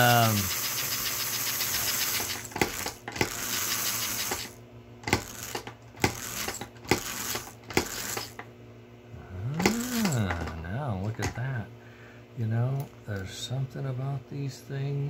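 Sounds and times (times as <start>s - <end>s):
toy train motor: 0.0s - 8.4s, 9.6s - 10.5s.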